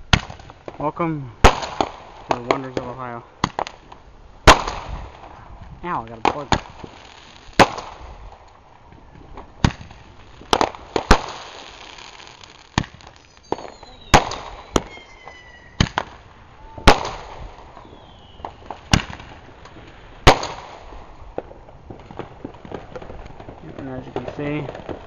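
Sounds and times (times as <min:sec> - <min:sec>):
crackling hiss: 0:00.0 - 0:25.0
fireworks banging: 0:00.0 - 0:25.0
firework whistles gliding down: 0:11.5 - 0:18.8.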